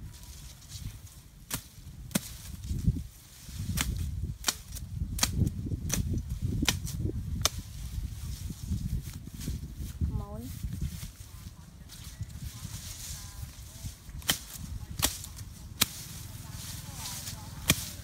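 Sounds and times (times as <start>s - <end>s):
leaves and branches rustling: 0.0s - 18.0s
blade chopping woody stems: 1.4s - 2.6s, 3.6s - 7.6s, 14.2s - 16.2s, 17.1s - 18.0s.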